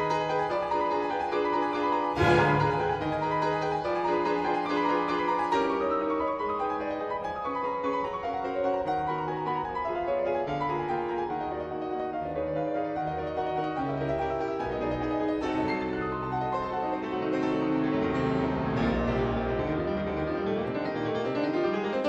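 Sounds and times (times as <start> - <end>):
piano melody over chords: 0.0 - 22.0.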